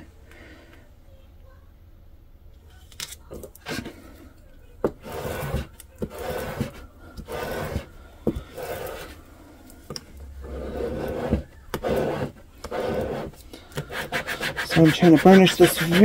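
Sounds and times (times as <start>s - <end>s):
scraper rubbing on tape: 4.9s - 7.9s, 8.5s - 9.2s, 10.4s - 16.0s.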